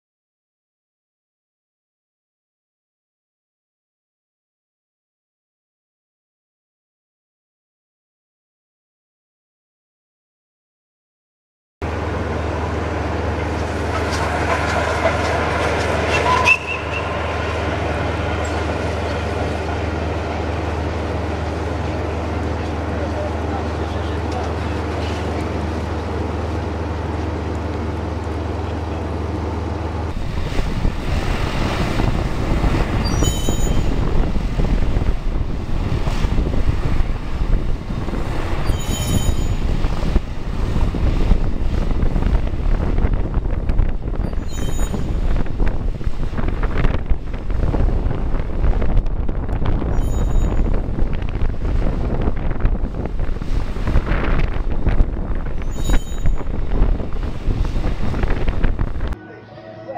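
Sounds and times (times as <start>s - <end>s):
tamping machine rattle and drone: 11.9s - 21.3s
high mechanical squeal: 15.8s - 17.6s, 33.0s - 34.1s, 38.6s - 39.8s, 44.2s - 45.3s, 49.9s - 50.8s, 55.6s - 56.6s.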